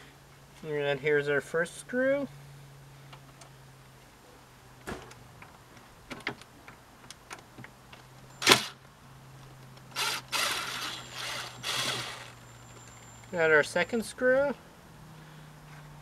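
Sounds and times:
impact driver rattling on screw: 10.0 - 12.4.

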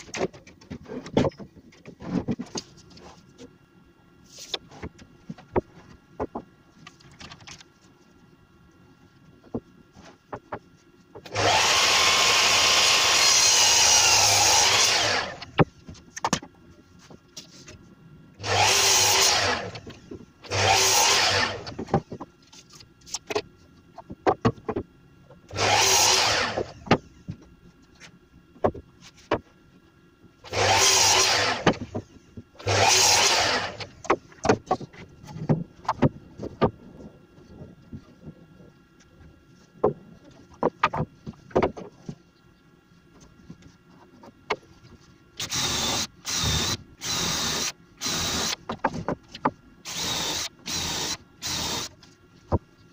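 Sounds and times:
mitre saw cutting wood: 11.3 - 15.5, 18.4 - 19.9, 20.5 - 21.8, 25.5 - 26.8, 30.5 - 31.9, 32.6 - 34.2, 45.4 - 48.6, 49.9 - 51.9.

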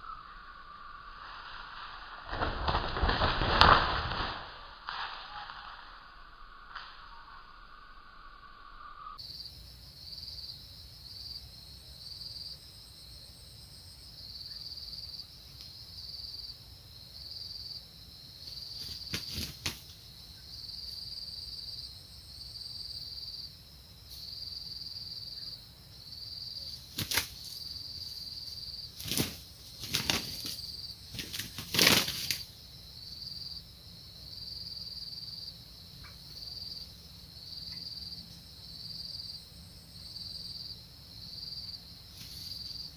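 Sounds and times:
insects chirping: 0.0 - 42.9
wings flapping: 1.3 - 5.8, 18.4 - 20.0, 26.7 - 27.7, 28.8 - 32.5, 42.1 - 42.7.

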